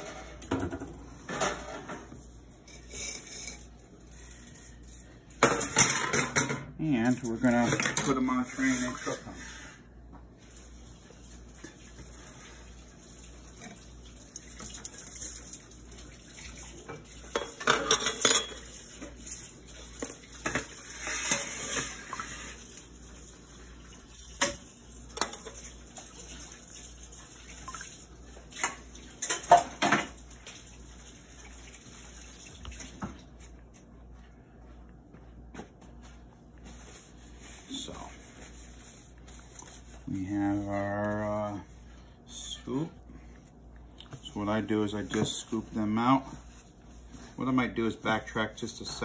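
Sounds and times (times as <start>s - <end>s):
metal pans and utensils clattering: 0.0s - 9.8s, 16.6s - 22.8s, 24.3s - 26.6s, 28.4s - 30.7s.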